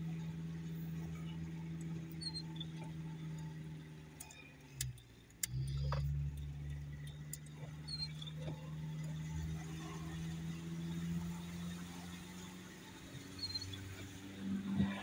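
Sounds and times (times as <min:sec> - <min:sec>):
car engine running: 0:00.0 - 0:15.0
light ticks and clicks: 0:04.1 - 0:08.6.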